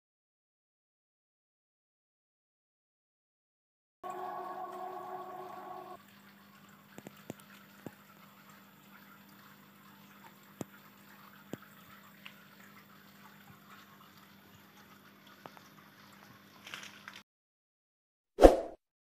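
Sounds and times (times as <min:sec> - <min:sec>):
water trickling and bubbling: 0:04.0 - 0:17.2.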